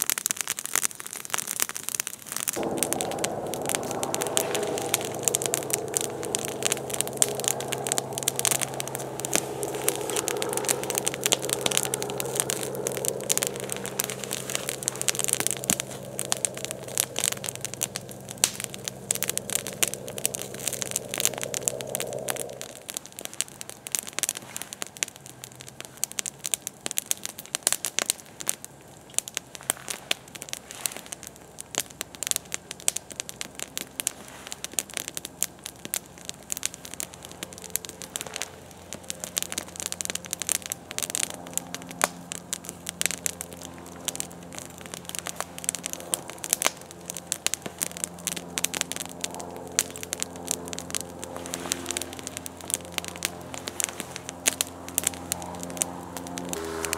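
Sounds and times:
campfire crackling and popping: 0.0 - 56.9
faint low hum: 2.6 - 24.2.

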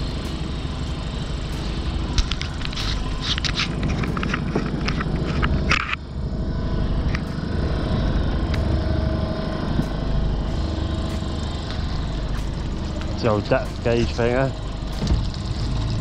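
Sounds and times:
sharp clicks and rattles: 0.0 - 6.1, 9.6 - 16.0
boat engine running: 0.0 - 16.0.

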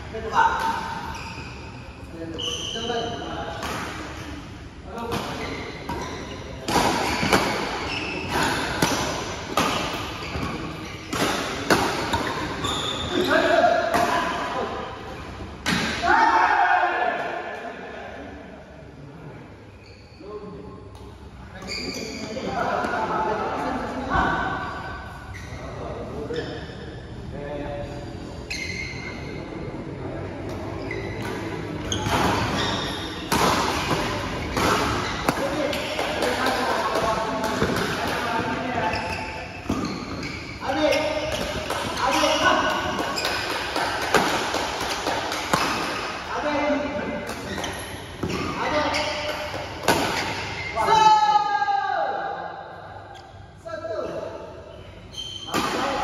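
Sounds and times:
shoes squeaking on court: 0.6 - 3.3, 5.0 - 13.5, 19.7 - 20.3, 21.0 - 22.5, 24.6 - 27.0, 28.4 - 29.2, 30.4 - 44.3, 47.2 - 50.9, 54.7 - 56.0
rackets hitting shuttlecock: 5.0 - 12.6, 30.4 - 38.5, 41.0 - 46.3, 49.1 - 50.6.

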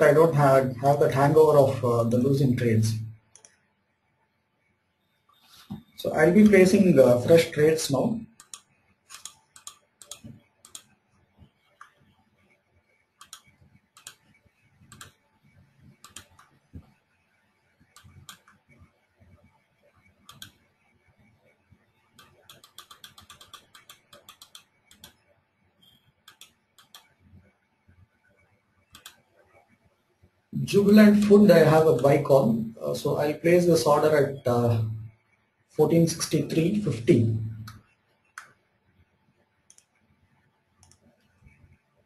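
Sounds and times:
mouse clicks: 3.3 - 3.6, 8.4 - 10.9, 13.2 - 15.2, 15.9 - 16.9, 17.9 - 18.8, 20.2 - 20.6, 22.2 - 25.2, 25.8 - 27.2, 28.9 - 29.5, 37.6 - 38.6, 39.7 - 40.0, 40.8 - 41.7
computer keyboard clicks: 8.4 - 10.9, 13.2 - 14.3, 14.9 - 15.2, 16.0 - 16.6, 20.3 - 20.6, 22.2 - 25.2, 26.2 - 27.1, 28.9 - 29.2.

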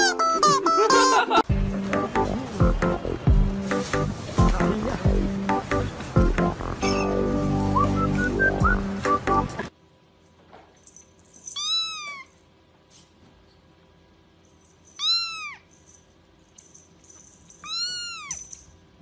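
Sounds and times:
kitten mewing: 17.6 - 18.4.

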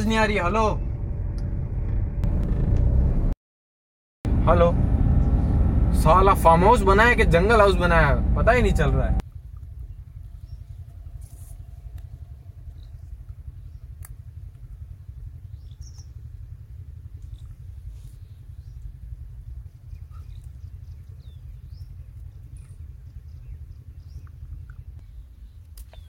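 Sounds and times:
low rumble: 0.0 - 3.4, 4.3 - 26.0
bird chirps: 15.4 - 16.2, 19.8 - 26.0.

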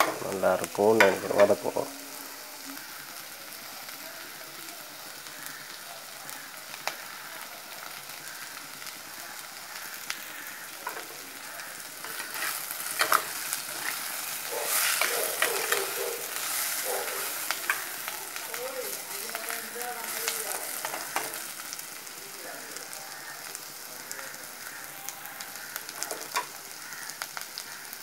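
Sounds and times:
onions sizzling in hot oil: 0.0 - 28.0
spoon scraping a clay pot: 12.1 - 14.0.

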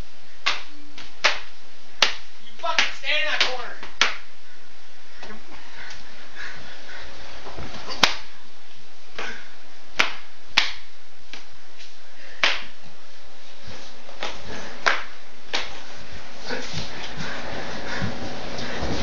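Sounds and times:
hand slaps on body: 0.4 - 2.2, 2.8 - 4.2, 8.0 - 8.3, 10.0 - 11.5, 12.4 - 12.7, 14.2 - 15.8.

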